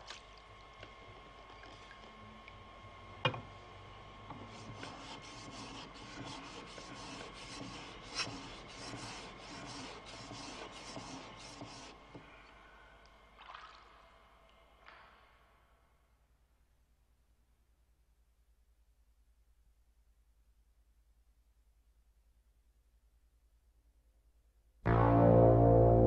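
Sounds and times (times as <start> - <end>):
blade scraping on whetstone: 4.6 - 12.0.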